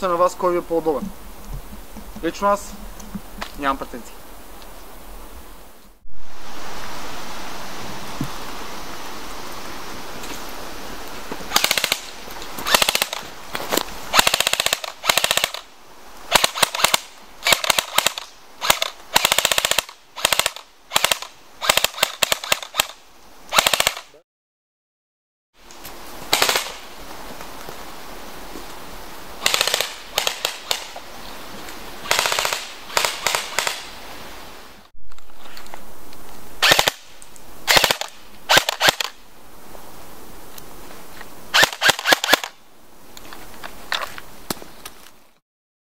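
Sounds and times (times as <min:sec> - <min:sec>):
airsoft rifle firing: 0:11.5 - 0:12.1, 0:14.2 - 0:15.6, 0:16.3 - 0:24.1, 0:26.3 - 0:26.8, 0:29.4 - 0:30.9, 0:32.1 - 0:33.9, 0:36.6 - 0:37.1, 0:37.7 - 0:39.2, 0:41.6 - 0:42.6.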